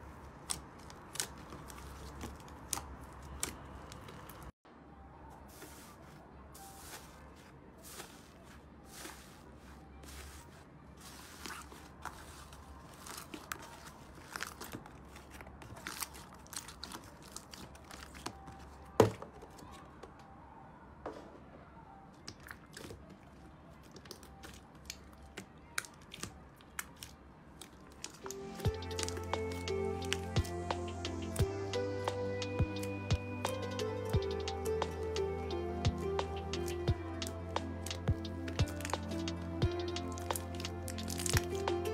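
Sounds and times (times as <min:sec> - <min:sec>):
music: 0:28.2 - 0:41.9
slime crackling and popping: 0:39.9 - 0:41.8.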